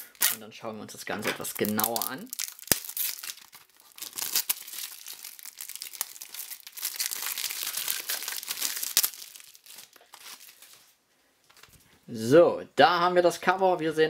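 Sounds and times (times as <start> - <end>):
plastic shrink-wrap crinkling and tearing: 0.0 - 0.4, 1.4 - 11.7.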